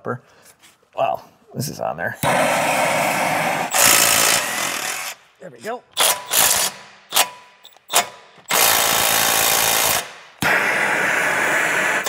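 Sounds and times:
power tool whirring: 2.2 - 5.2, 5.9 - 12.0.

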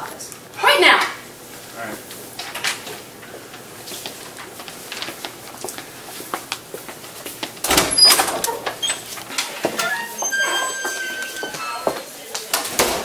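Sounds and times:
soft footsteps and shuffling: 1.5 - 7.6, 8.6 - 12.5
door thud and clatter: 7.6 - 8.4.

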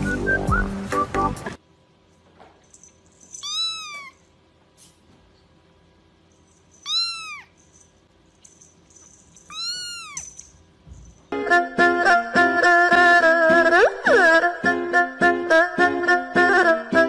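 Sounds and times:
kitten meowing: 3.4 - 4.2, 6.8 - 7.5, 9.5 - 10.3.

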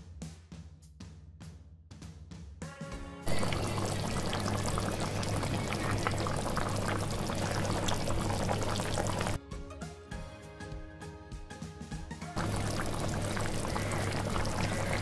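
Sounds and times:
background music: 2.6 - 15.0
curry boiling and spitting in pan: 3.3 - 9.4, 12.4 - 15.0.

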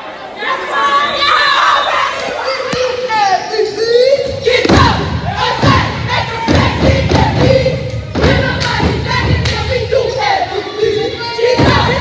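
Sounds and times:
cheerleaders chanting in unison: 0.0 - 12.0
crowd noise: 0.0 - 12.0
rhythmic thumps: 4.2 - 12.0.

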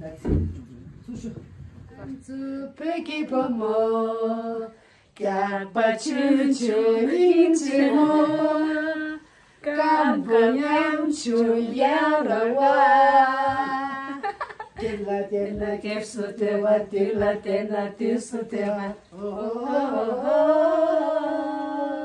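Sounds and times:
woman singing unaccompanied: 2.0 - 22.0
singer breathing: 4.8 - 5.2, 9.2 - 9.6.

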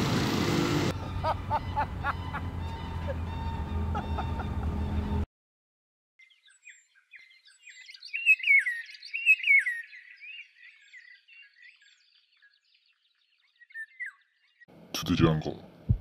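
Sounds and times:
low vehicle rumble: 0.0 - 5.2
birds chirping: 1.0 - 5.2, 6.2 - 14.7.

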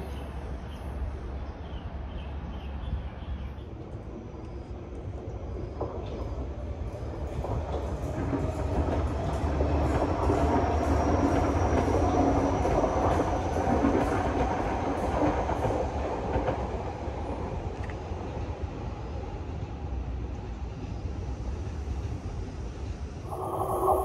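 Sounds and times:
train rumble and wheel clatter: 0.0 - 24.0
faint high whine: 23.3 - 24.0.

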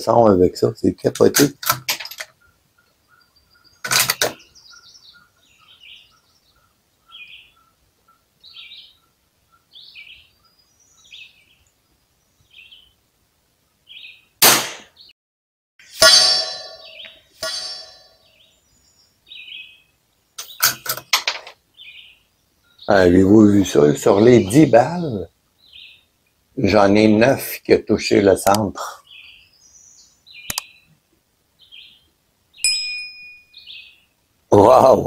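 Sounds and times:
small birds chirping: 0.0 - 13.0, 13.6 - 15.1, 16.4 - 35.0
rifle shots: 14.4 - 14.9
ringing metallic clangs: 15.9 - 18.4, 32.6 - 33.6.

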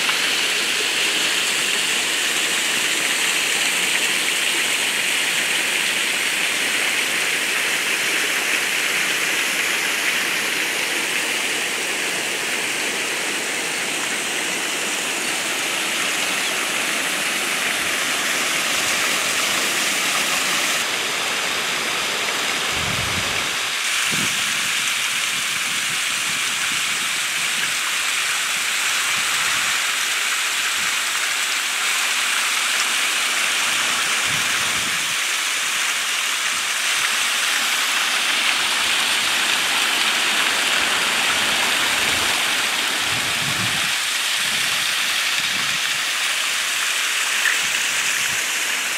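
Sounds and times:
waterfall rushing: 0.0 - 48.9.

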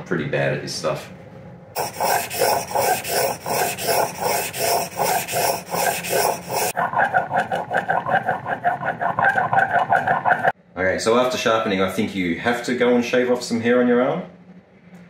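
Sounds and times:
plane blade scraping on stone: 1.8 - 6.8.

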